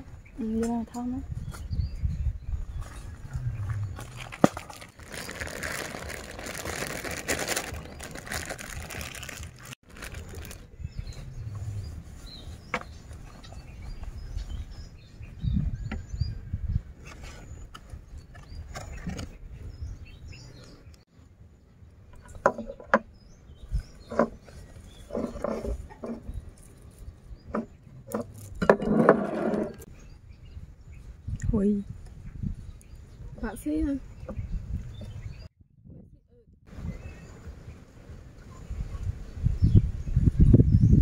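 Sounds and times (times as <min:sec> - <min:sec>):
low rumble: 0:02.1 - 0:12.2
plastic bag crinkling: 0:04.0 - 0:10.7.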